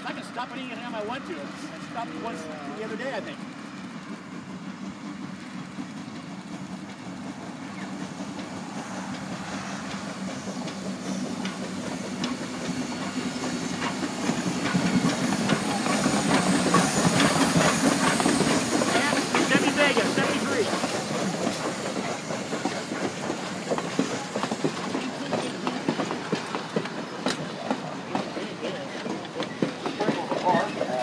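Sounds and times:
steam locomotive arriving: 0:00.0 - 0:31.0
steam hissing: 0:00.1 - 0:31.0
wheels clicking over rail joints: 0:00.1 - 0:31.0.

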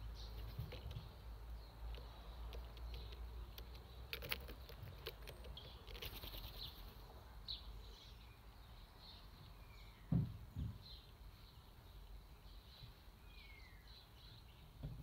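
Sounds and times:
faint bird chirps: 0:00.0 - 0:14.8
sharp clicks: 0:01.9 - 0:06.6.

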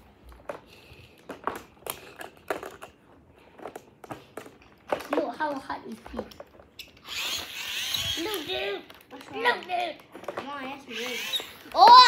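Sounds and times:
plastic toy track clicks: 0:03.6 - 0:12.0.

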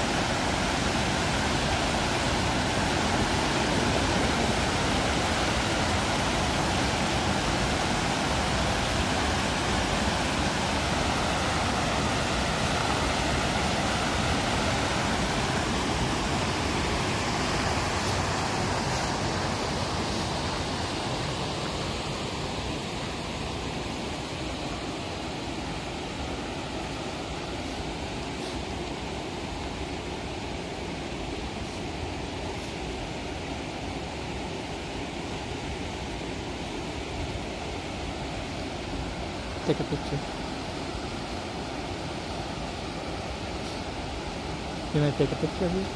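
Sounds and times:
water pouring over spillway: 0:00.0 - 0:21.9.

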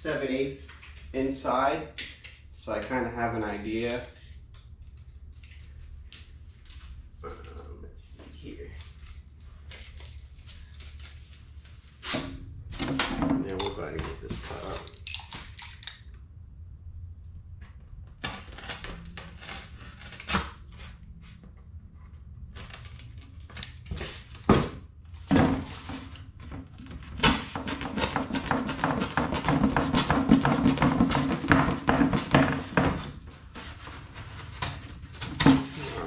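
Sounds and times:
knife slicing cardboard: 0:18.2 - 0:21.0, 0:27.0 - 0:36.0.

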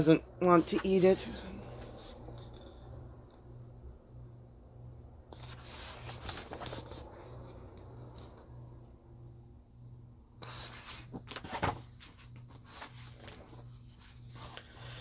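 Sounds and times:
faint low hum: 0:00.0 - 0:15.0
book page turning: 0:05.3 - 0:08.4, 0:10.4 - 0:14.8
paper rustling and crackling: 0:05.4 - 0:07.2, 0:10.4 - 0:14.9.

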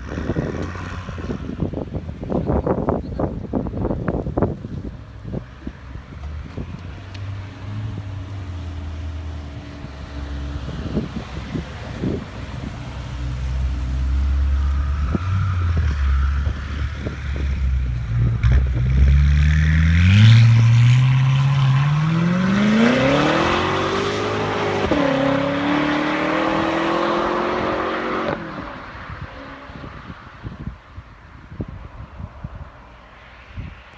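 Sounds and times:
car engine revving: 0:06.4 - 0:28.7.

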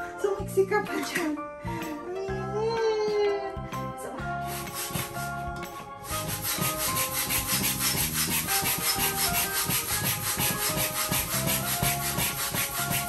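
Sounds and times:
manual air pump strokes: 0:04.4 - 0:05.4, 0:06.0 - 0:13.0.

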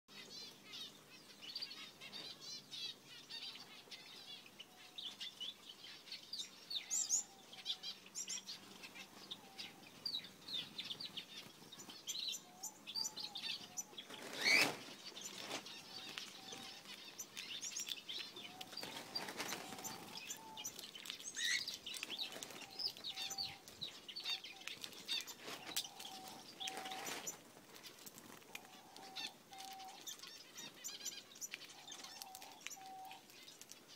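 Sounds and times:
small birds chirping: 0:00.1 - 0:33.9
birds wings flapping: 0:14.1 - 0:15.7, 0:18.6 - 0:20.3.

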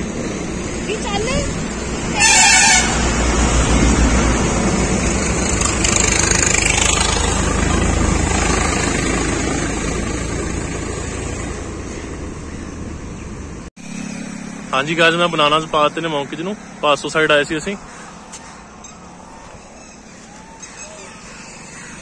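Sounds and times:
motor vehicle rumble: 0:00.0 - 0:22.0.

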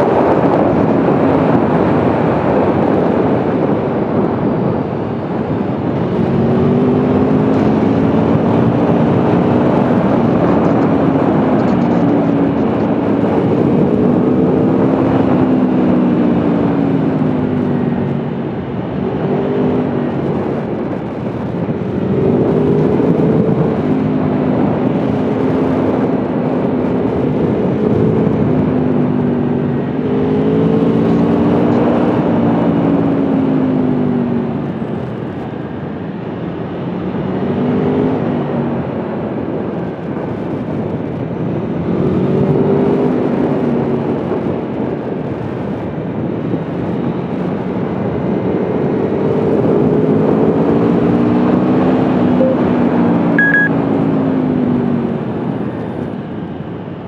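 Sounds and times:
motorcycle engine revving: 0:00.0 - 0:33.8.

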